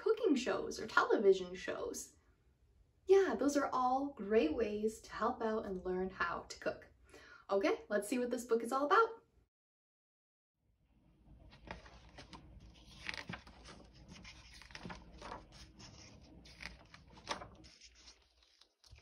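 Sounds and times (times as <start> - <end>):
book pages turning: 11.3 - 19.0.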